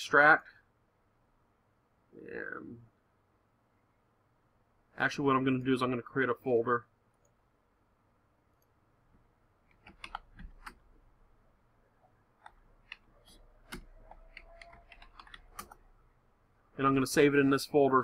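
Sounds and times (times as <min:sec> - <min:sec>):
keyboard keystrokes: 0:09.7 - 0:10.8, 0:12.4 - 0:15.8
mouse clicks: 0:09.7 - 0:10.8, 0:12.4 - 0:15.8.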